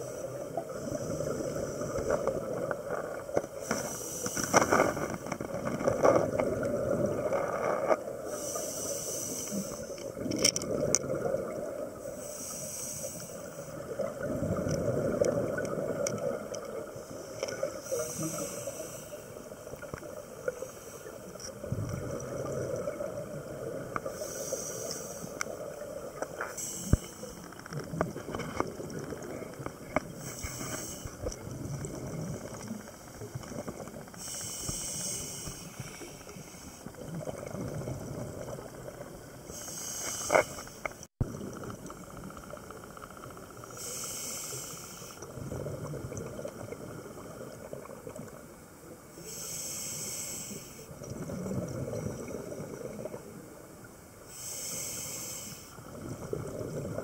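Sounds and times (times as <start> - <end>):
regulator hiss on inhale: 0.0 - 2.7, 3.4 - 5.5, 8.2 - 10.2, 12.0 - 14.1, 16.8 - 21.6, 23.9 - 27.7, 30.0 - 31.4, 32.5 - 37.3, 39.5 - 41.0, 43.6 - 45.4, 49.1 - 51.0, 54.2 - 55.9
bubbling exhaled air: 0.0 - 42.4, 43.6 - 48.4, 49.6 - 53.4.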